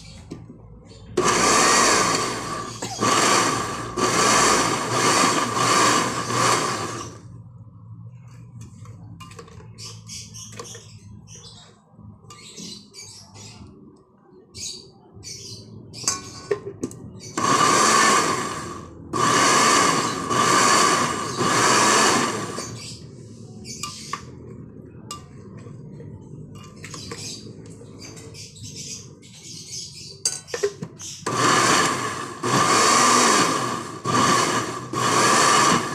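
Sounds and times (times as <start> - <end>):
blender running under load: 1.2 - 7.2, 17.3 - 22.9, 31.2 - 35.9.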